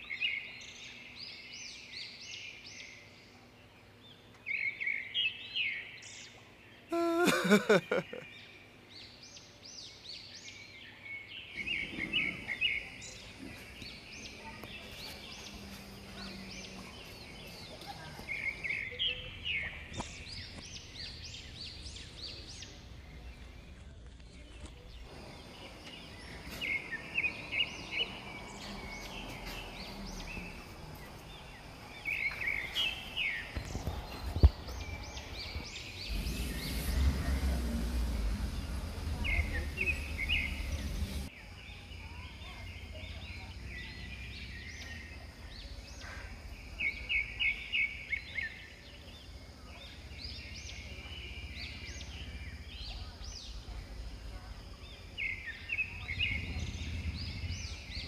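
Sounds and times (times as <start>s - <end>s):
bird singing rising chirps: 24.9s - 41.4s, 54.8s - 58.0s
low rumble: 34.7s - 41.3s, 55.9s - 58.0s.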